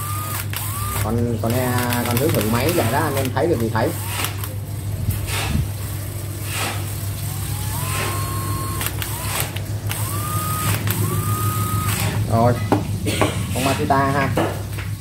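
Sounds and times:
impact driver motor whine: 0:00.0 - 0:04.6, 0:06.6 - 0:12.5.

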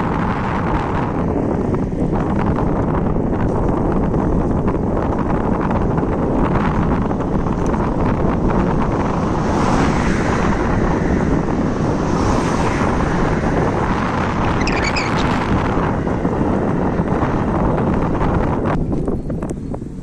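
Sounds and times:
wind buffeting microphone: 0:00.0 - 0:20.0
high chirping: 0:14.6 - 0:15.6.

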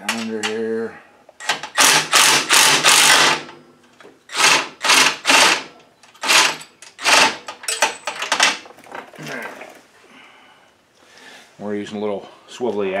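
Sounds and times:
impact driver bursts: 0:01.4 - 0:03.5, 0:04.3 - 0:07.5.

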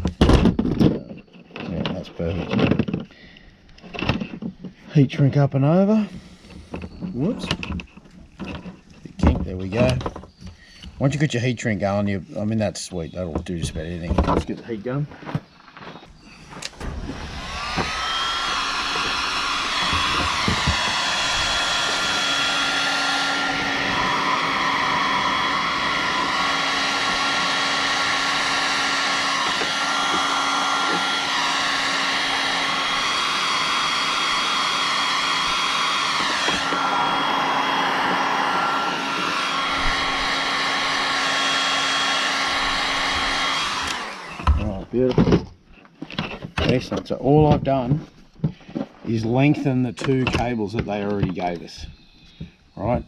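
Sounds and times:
heat gun whine and fan hiss: 0:16.2 - 0:45.0.

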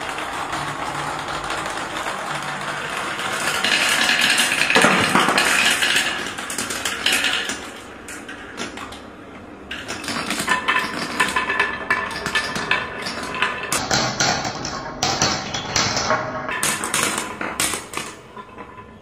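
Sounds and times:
marbles rattling along track: 0:00.0 - 0:19.0
sharp marble clicks: 0:00.0 - 0:19.0.

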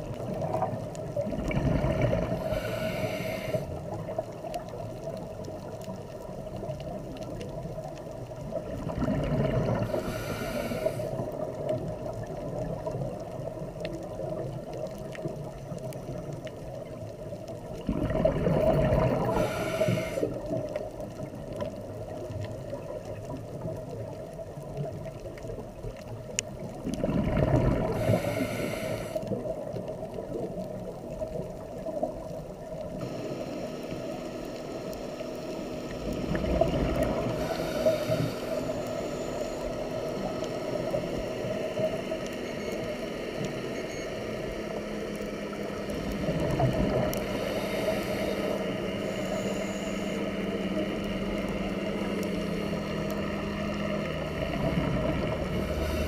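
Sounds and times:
steady low hum: 0:00.0 - 0:05.5, 0:06.1 - 0:23.7, 0:27.3 - 0:29.7, 0:30.6 - 0:56.0
exhaled bubbles rumbling: 0:00.0 - 0:38.7, 0:45.1 - 0:56.0
regulator inhale hiss: 0:02.2 - 0:04.1, 0:09.6 - 0:11.4, 0:19.0 - 0:20.6, 0:27.8 - 0:29.4, 0:37.1 - 0:40.7, 0:45.9 - 0:54.0, 0:55.1 - 0:56.0.

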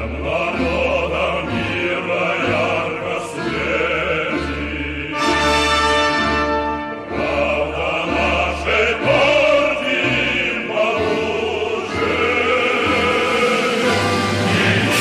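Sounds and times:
choir singing: 0:00.0 - 0:15.0
orchestra playing: 0:00.0 - 0:15.0.

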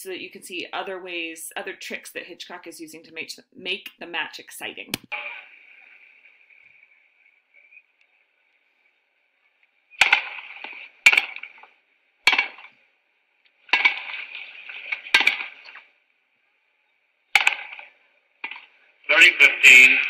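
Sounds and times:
rackets hitting tennis ball: 0:10.0 - 0:11.7, 0:12.3 - 0:12.8, 0:13.7 - 0:15.8, 0:17.4 - 0:18.6.

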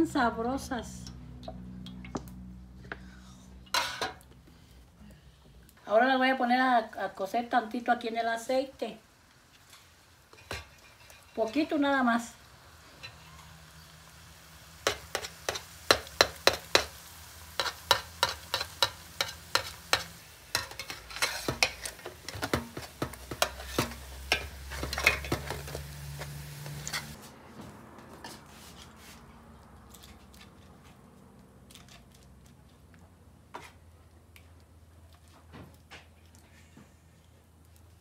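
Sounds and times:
food sizzling in oil: 0:07.5 - 0:27.2
metal spatula scraping a pan: 0:09.6 - 0:11.8, 0:12.8 - 0:13.9, 0:14.7 - 0:27.2.

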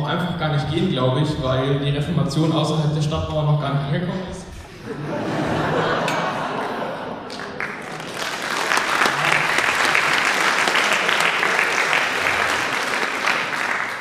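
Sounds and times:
audience laughing: 0:04.6 - 0:14.0
audience applause: 0:07.2 - 0:14.0.

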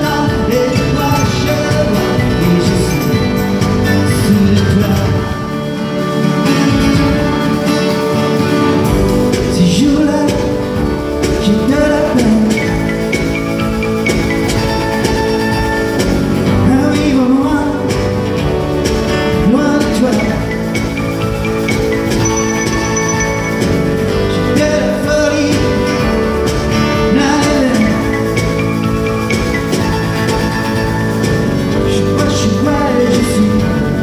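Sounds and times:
man singing: 0:00.0 - 0:05.8, 0:09.4 - 0:13.4, 0:16.4 - 0:18.5, 0:19.2 - 0:21.0, 0:24.1 - 0:28.7, 0:31.7 - 0:34.0
acoustic guitar: 0:00.0 - 0:34.0
held chord accompaniment: 0:20.6 - 0:27.3.

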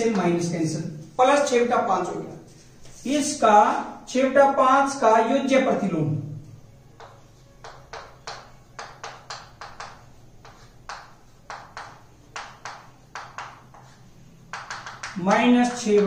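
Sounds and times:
chalk tapping and scratching on board: 0:07.0 - 0:16.0.

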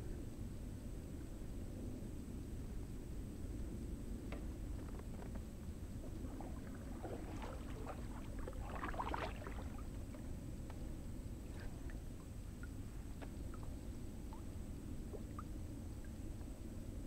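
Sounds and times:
steady low rumble: 0:00.0 - 0:17.0
paddle pulling through water: 0:04.9 - 0:12.3
small splashes and drips: 0:06.0 - 0:10.2, 0:11.5 - 0:16.2.

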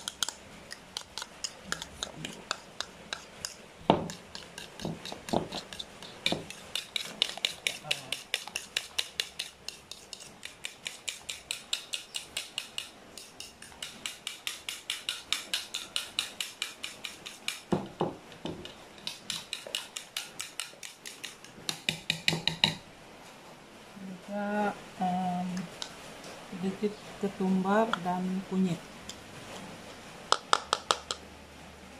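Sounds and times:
fork beating egg in bowl: 0:00.0 - 0:22.8.

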